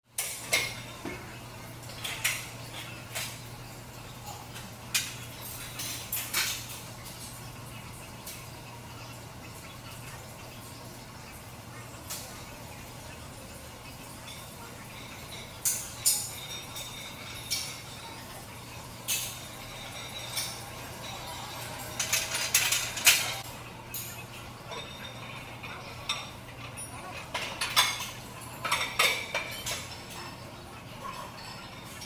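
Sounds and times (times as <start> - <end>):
metal weight plates clinking: 14.2 - 30.4.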